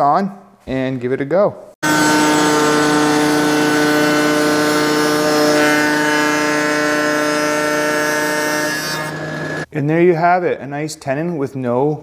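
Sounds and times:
router bit cutting wood: 1.8s - 9.7s
router whining: 1.8s - 9.7s.

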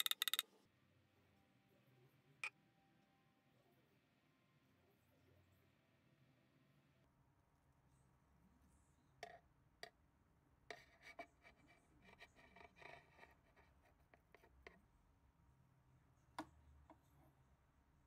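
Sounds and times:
metal tweezers clicking: 0.0s - 0.4s.

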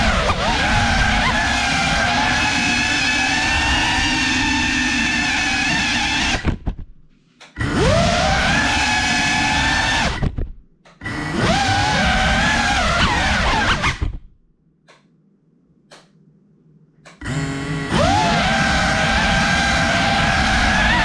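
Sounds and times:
quadcopter motors whining: 0.0s - 6.5s, 7.5s - 10.3s, 11.0s - 14.0s, 17.2s - 21.0s.

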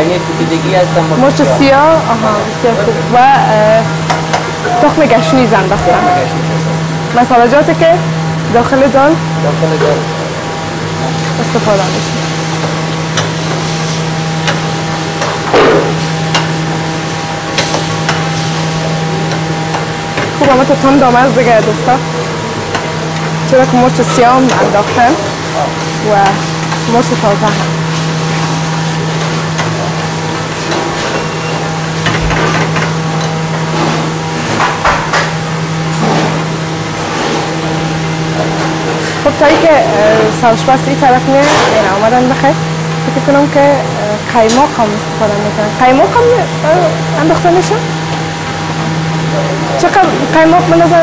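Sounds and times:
steady machine hum: 0.0s - 51.0s.

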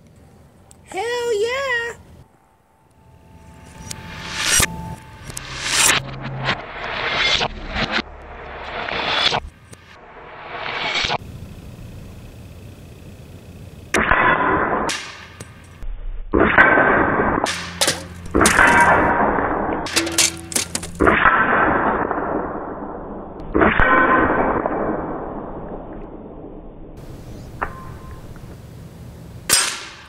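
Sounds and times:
pellets clanging on metal targets: 17.5s - 19.0s, 19.9s - 21.1s
sharp cracks and clinks: 17.5s - 19.1s, 19.9s - 21.3s, 29.5s - 30.0s.

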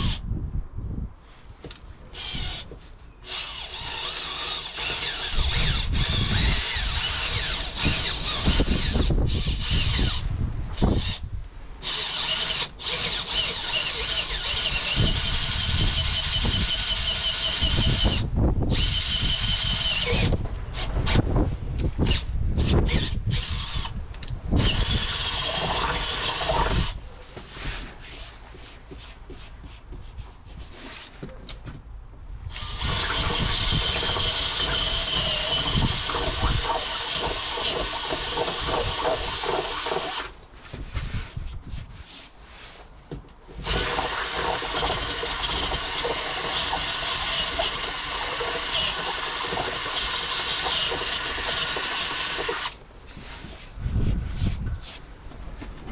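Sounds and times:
cordless drill whining: 1.7s - 11.2s, 11.8s - 21.2s, 22.0s - 24.0s, 24.6s - 27.0s, 32.5s - 40.4s, 43.6s - 52.8s.

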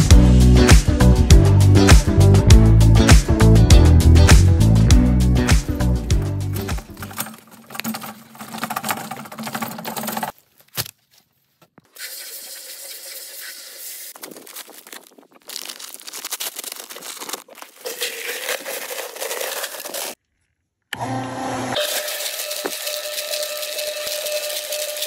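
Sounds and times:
cement mixer rattling on wheels: 6.1s - 10.4s
paper bag crinkling and tearing: 6.5s - 11.1s, 14.1s - 20.2s, 21.8s - 25.0s
water hissing from hose nozzle: 11.9s - 14.3s, 21.9s - 25.0s.

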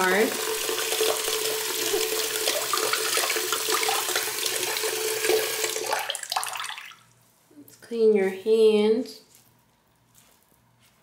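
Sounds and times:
faucet running into sink: 0.0s - 7.1s.

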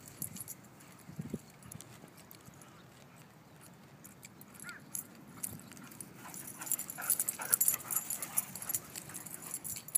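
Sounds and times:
dogs scuffling: 4.5s - 9.9s.

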